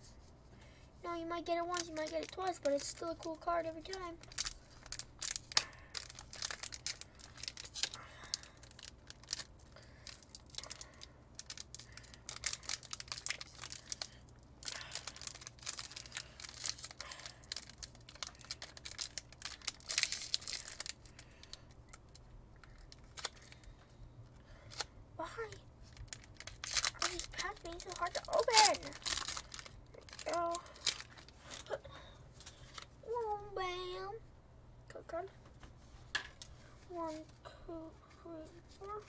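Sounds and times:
foil wrapper crinkling: 1.4s - 31.8s
foil ripping: 1.7s - 21.6s, 26.0s - 31.7s.

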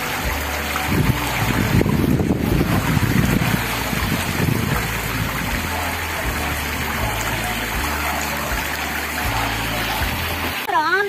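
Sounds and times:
water rushing down slide: 0.0s - 11.0s
wind buffeting microphone: 0.9s - 5.6s.

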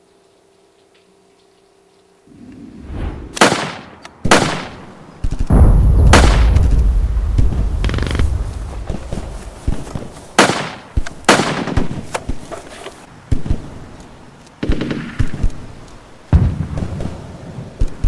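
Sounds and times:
lighter gunfire cracks: 3.2s - 12.2s, 14.6s - 18.0s
loud gunshots with echo: 3.3s - 9.5s, 10.4s - 12.0s.

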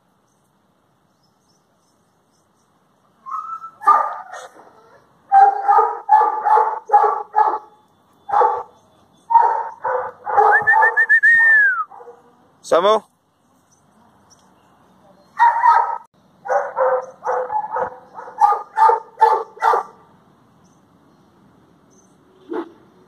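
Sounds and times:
dog barking: 3.8s - 7.7s, 8.3s - 8.7s, 9.3s - 11.0s, 11.9s - 12.3s, 15.4s - 20.0s.

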